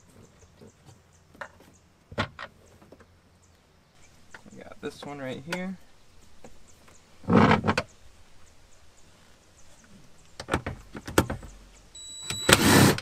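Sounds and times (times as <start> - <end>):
impact driver motor whine: 12.2 - 13.0.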